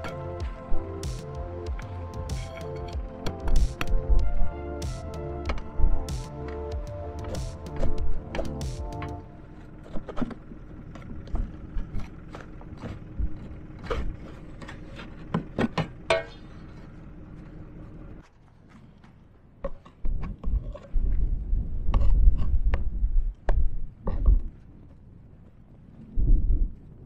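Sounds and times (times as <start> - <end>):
steady hum: 0.0 - 18.3
knocking and scraping snow: 0.0 - 21.3
wind on microphone: 20.2 - 24.9, 25.8 - 27.0.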